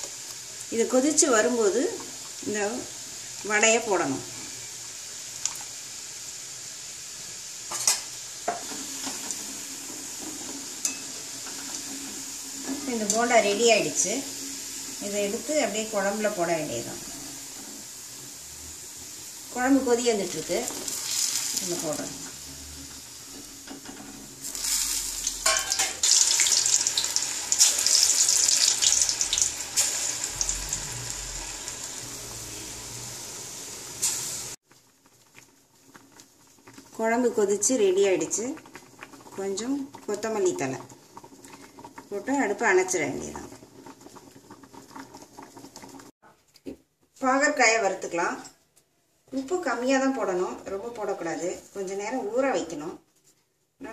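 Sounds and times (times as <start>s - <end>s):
food sizzling in hot oil: 0.0s - 46.2s
metal spoons clinking on pans: 10.8s - 11.1s, 25.4s - 26.0s.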